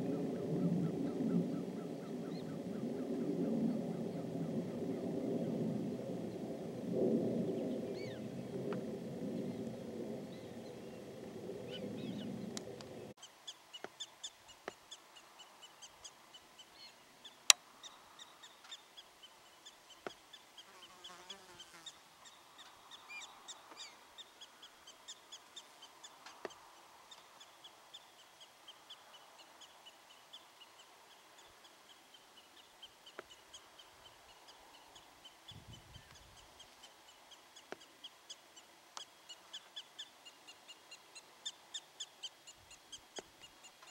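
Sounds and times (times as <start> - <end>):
low rushing noise: 0.0 - 13.2
prairie dogs chirping: 10.2 - 13.1.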